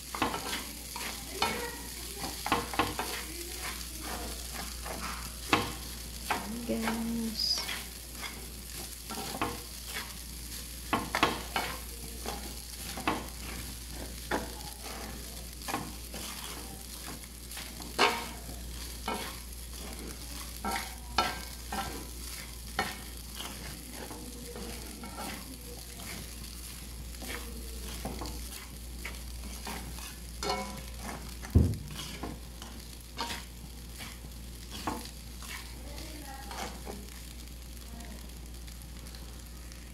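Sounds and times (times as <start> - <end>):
utensils scraping and tapping a wok: 0.0 - 38.3
faint sizzle: 0.0 - 39.9
sharp knock on pan: 31.5 - 32.0.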